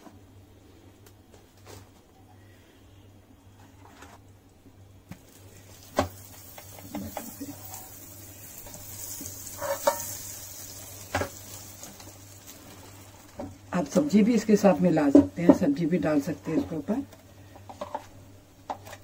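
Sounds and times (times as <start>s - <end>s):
butter sizzling in a pan: 5.2s - 14.2s.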